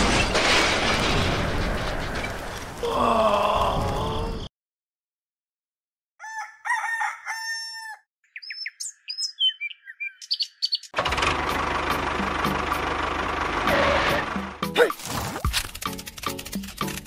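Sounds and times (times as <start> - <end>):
rooster crowing: 6.2 - 8.1
small birds chirping: 8.2 - 11.0.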